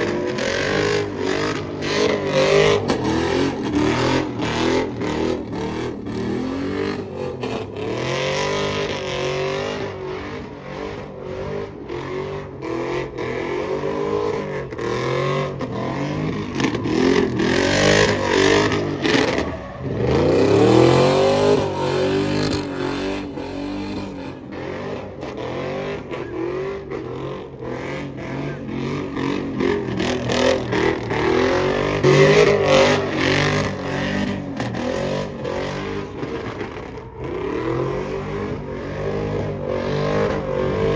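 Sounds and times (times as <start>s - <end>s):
tires squealing: 0.0s - 40.9s
truck engine revving: 14.8s - 40.9s.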